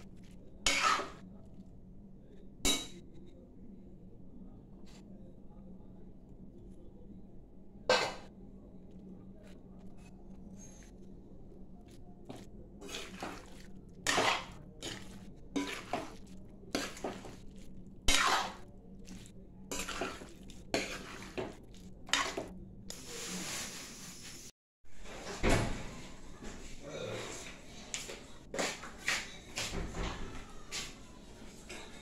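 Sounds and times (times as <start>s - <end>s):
metal spatula scraping a pan: 0.6s - 1.2s, 12.8s - 18.6s, 19.7s - 23.8s
faint hum: 1.3s - 14.0s.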